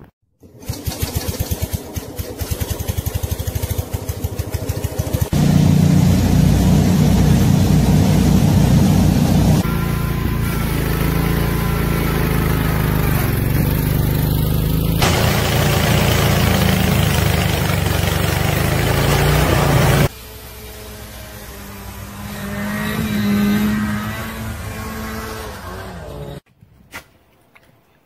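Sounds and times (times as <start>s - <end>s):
garden tractor engine under load: 0.4s - 20.1s
snowblower throwing snow: 5.2s - 20.1s.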